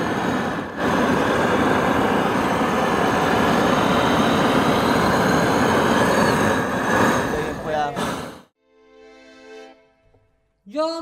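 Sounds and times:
gas torch rushing: 0:00.0 - 0:08.6.

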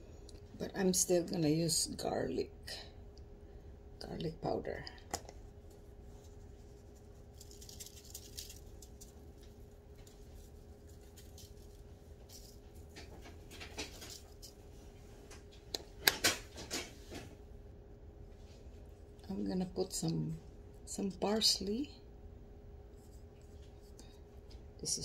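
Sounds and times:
faint steady hum: 0:00.0 - 0:25.0
granules pattering on tray: 0:07.2 - 0:14.5.

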